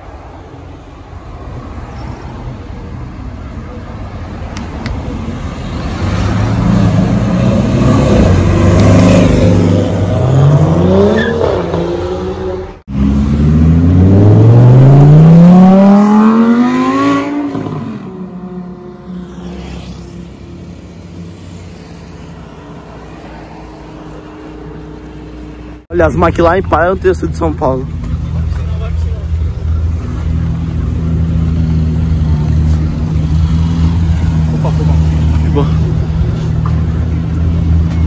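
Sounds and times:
light street traffic: 0:00.0 - 0:38.0
sports car engine accelerating: 0:05.8 - 0:18.8.

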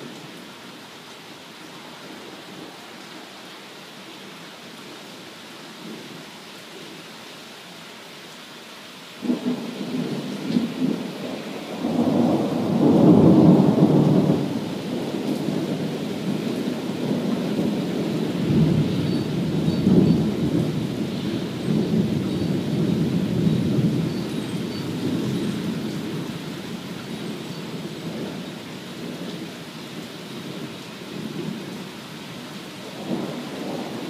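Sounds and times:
steady rain falling: 0:00.0 - 0:34.0
rolling thunder: 0:09.2 - 0:26.4, 0:32.9 - 0:34.0.

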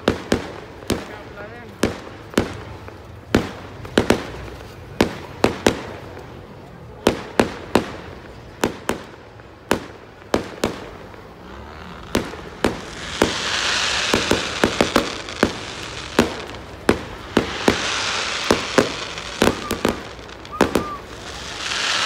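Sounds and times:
fireworks bangs: 0:00.0 - 0:22.0
fireworks hissing: 0:07.7 - 0:22.0.

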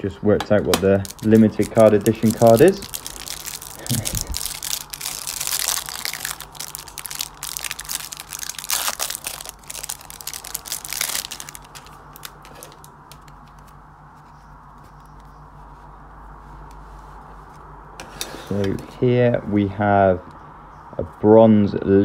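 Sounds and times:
plastic wrap crinkling: 0:00.8 - 0:15.3.

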